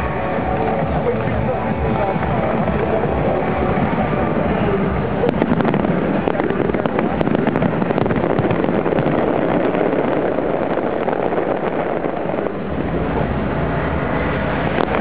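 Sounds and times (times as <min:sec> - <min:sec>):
fireworks bangs and crackles: 0:00.0 - 0:15.0.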